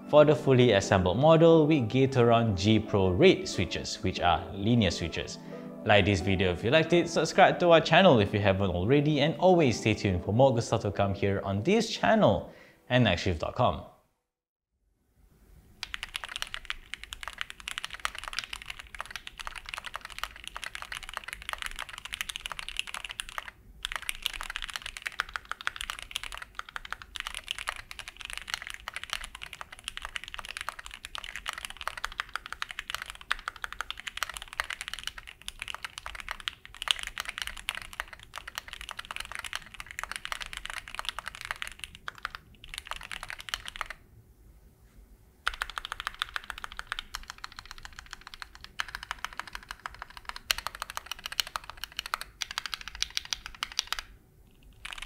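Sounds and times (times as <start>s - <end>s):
mechanical keyboard typing: 15.8s - 44.0s, 45.4s - 55.0s.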